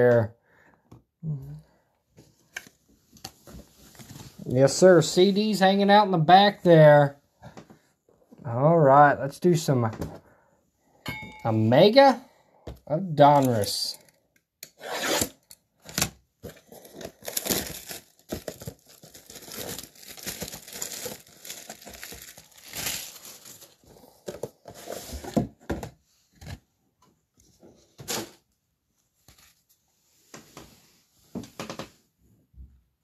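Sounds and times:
plastic wrapping crinkling: 16.6s - 23.9s.

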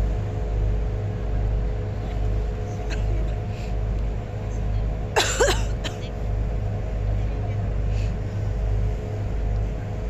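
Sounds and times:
boat engine droning: 0.0s - 10.0s.

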